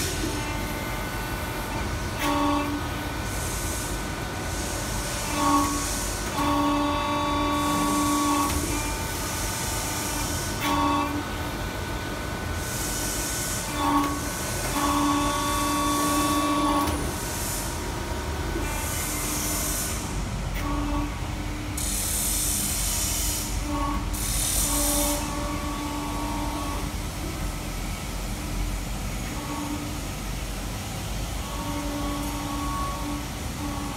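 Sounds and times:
machine low hum: 0:00.0 - 0:33.9
machine whining tones: 0:04.5 - 0:11.4, 0:13.6 - 0:17.5, 0:18.6 - 0:22.0, 0:22.6 - 0:27.4, 0:29.2 - 0:30.4, 0:31.3 - 0:33.9.

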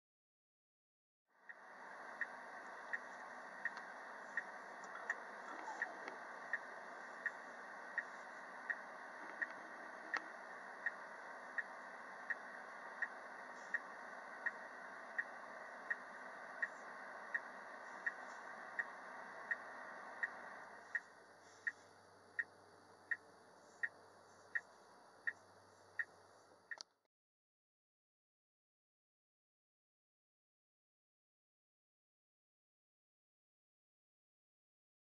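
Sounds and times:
steady rumble: 0:01.3 - 0:26.8
steady ticking: 0:01.4 - 0:26.8.

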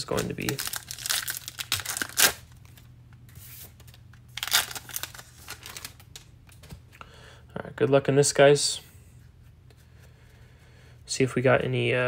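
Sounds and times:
foil wrappers torn and crinkled: 0:00.0 - 0:02.8, 0:04.3 - 0:06.3.

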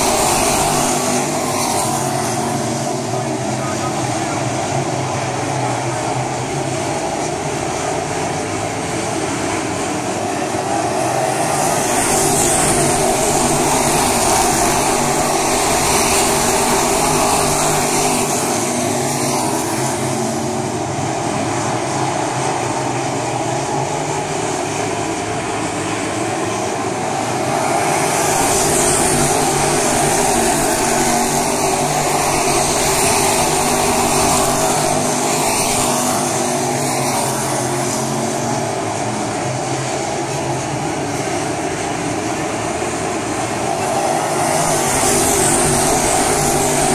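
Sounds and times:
race cars engine din: 0:00.0 - 0:46.9.

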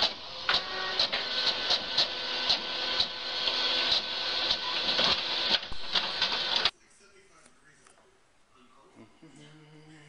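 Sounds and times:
printer whirring and clicking: 0:00.0 - 0:06.7.

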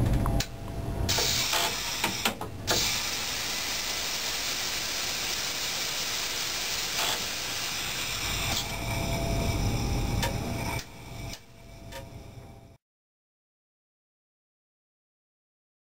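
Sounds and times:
air hissing in train cab: 0:01.1 - 0:12.4.

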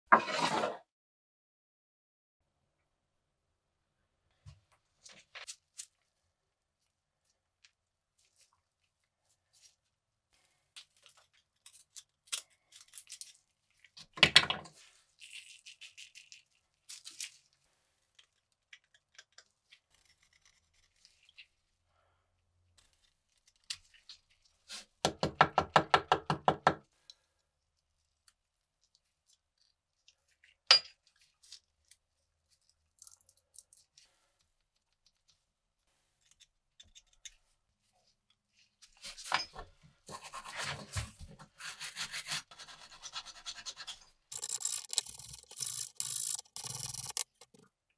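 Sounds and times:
scratchy scraping: 0:00.1 - 0:00.8
small objects knocking and clicking: 0:44.3 - 0:47.7.

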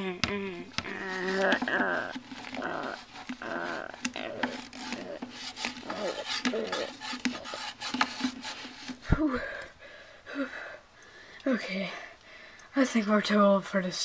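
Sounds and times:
plastic toys clacking: 0:00.0 - 0:09.0
plastic toys scraping: 0:00.0 - 0:09.4.

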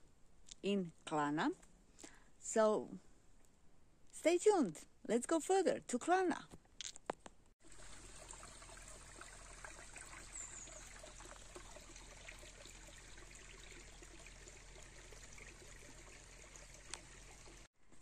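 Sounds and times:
stream trickling over stones: 0:07.6 - 0:17.7.

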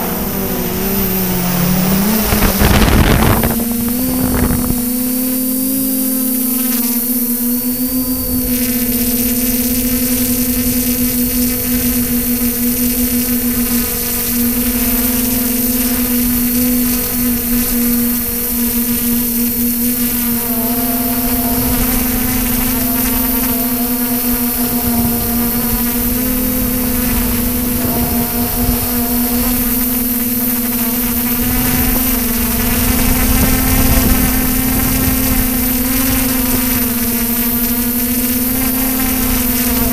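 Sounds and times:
drone propellers buzzing: 0:00.0 - 0:39.9.

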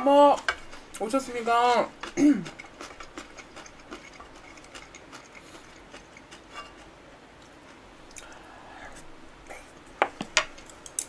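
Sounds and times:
close chewing: 0:01.9 - 0:08.4.

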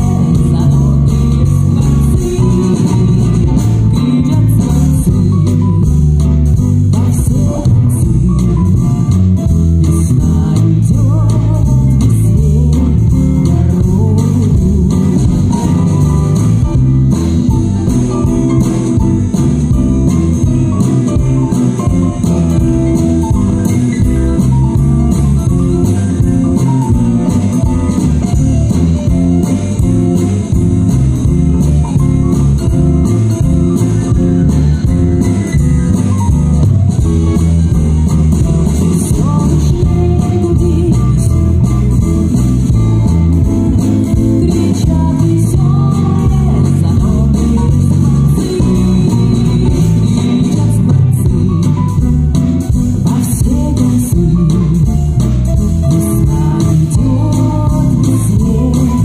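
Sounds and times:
woman singing into microphone: 0:00.0 - 0:05.6, 0:07.0 - 0:08.8, 0:09.8 - 0:16.4, 0:38.7 - 0:42.1, 0:44.1 - 0:52.0, 0:53.0 - 0:55.0, 0:55.9 - 0:59.0
drum kit: 0:00.0 - 0:59.0
electric bass guitar: 0:00.0 - 0:59.0
electric guitar: 0:00.0 - 0:59.0.

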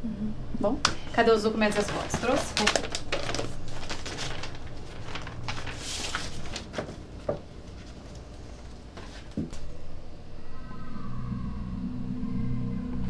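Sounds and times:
paper rustling: 0:01.5 - 0:09.6.

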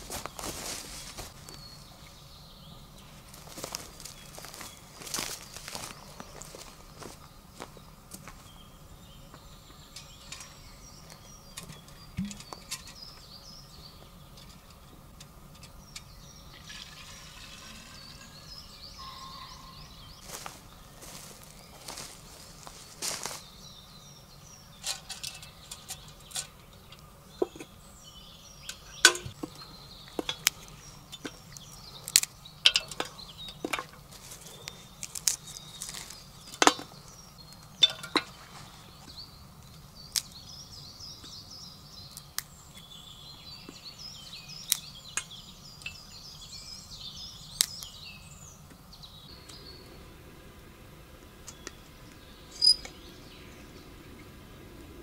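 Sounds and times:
small birds twittering: 0:00.0 - 0:55.0
metal kettle clicks and clinks: 0:29.0 - 0:29.3, 0:32.7 - 0:34.0, 0:37.8 - 0:38.3.

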